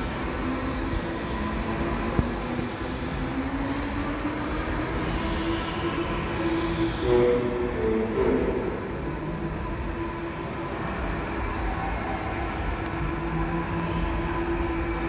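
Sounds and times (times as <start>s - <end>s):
go-kart motors droning: 0.0s - 15.0s.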